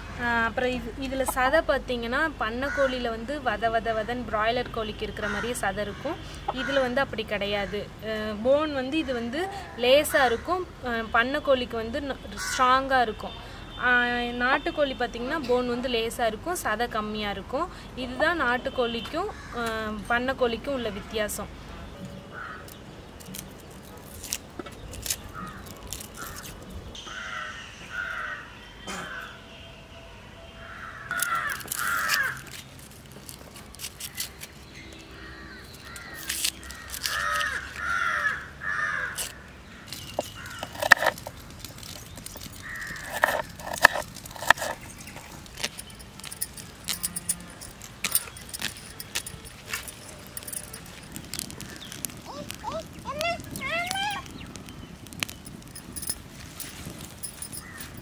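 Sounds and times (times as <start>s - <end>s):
crows cawing: 22.3s - 22.8s, 25.4s - 29.4s, 30.6s - 32.5s, 35.2s - 40.9s, 42.6s - 43.3s, 57.6s - 58.0s
handling clicks and taps: 39.9s - 52.2s, 55.1s - 58.0s.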